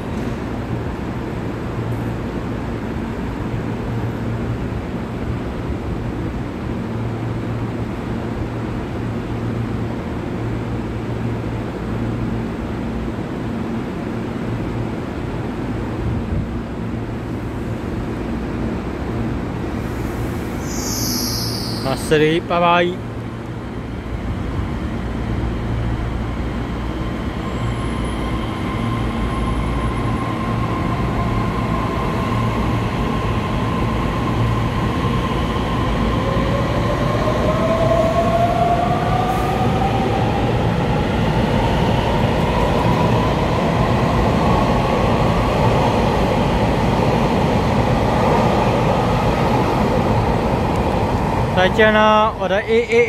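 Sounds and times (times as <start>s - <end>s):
electric train accelerating past: 16.8s - 53.0s.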